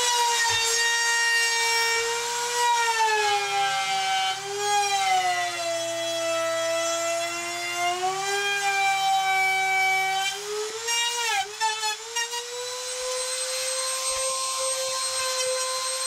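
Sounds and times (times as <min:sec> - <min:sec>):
router motor whining: 0:00.0 - 0:16.0.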